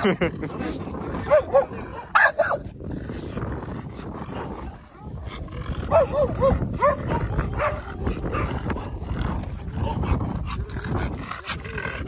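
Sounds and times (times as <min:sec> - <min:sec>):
dog barking: 0:01.3 - 0:02.6, 0:05.9 - 0:08.5.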